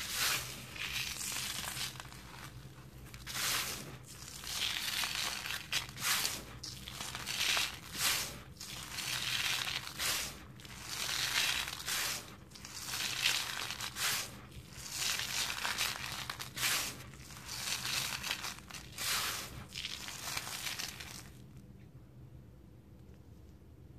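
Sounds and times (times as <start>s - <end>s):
hands crunching dry cement powder: 0.0s - 21.5s.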